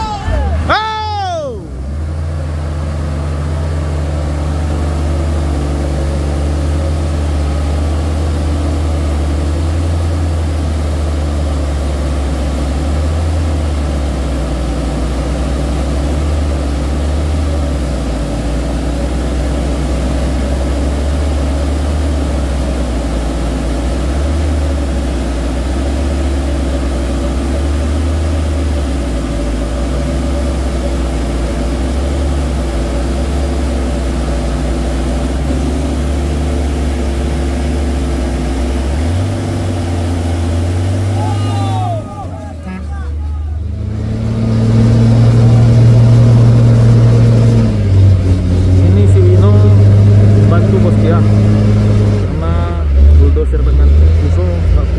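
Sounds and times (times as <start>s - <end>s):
diesel engine idling: 0.0s - 54.9s.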